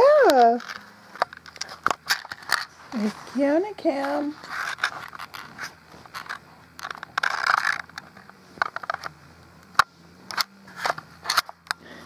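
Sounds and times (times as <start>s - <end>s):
phone handling noise: 4.4s - 11.8s.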